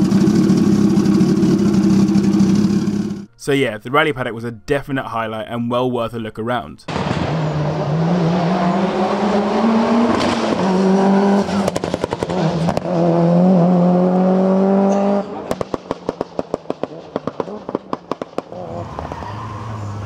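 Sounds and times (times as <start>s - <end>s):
second car engine: 0.0s - 3.3s, 6.9s - 20.0s
exhaust popping and crackling: 6.9s - 7.5s, 10.0s - 13.2s, 15.4s - 18.6s
rally car engine accelerating: 6.9s - 20.0s.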